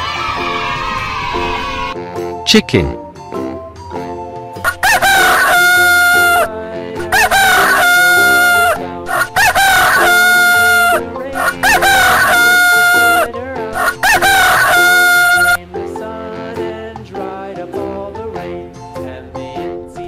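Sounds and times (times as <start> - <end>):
rooster crowing: 4.6 - 15.6.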